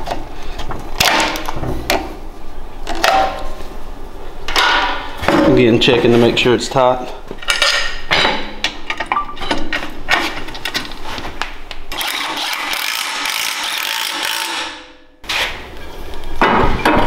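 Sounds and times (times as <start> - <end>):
cordless driver running: 11.9 - 14.7.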